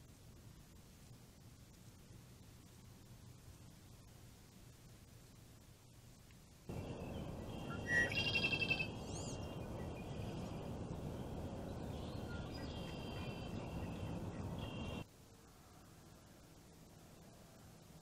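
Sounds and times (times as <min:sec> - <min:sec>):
steady background hiss: 0:00.0 - 0:18.0
birds calling: 0:06.7 - 0:15.0
bird whistle rising and falling: 0:07.6 - 0:09.9.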